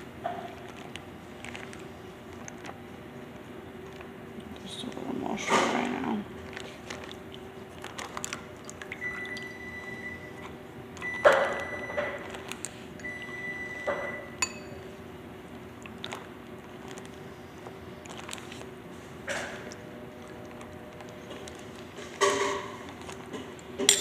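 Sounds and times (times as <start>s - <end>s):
steady hum: 0.0s - 24.0s
spoon clinking in pot: 13.9s - 14.8s.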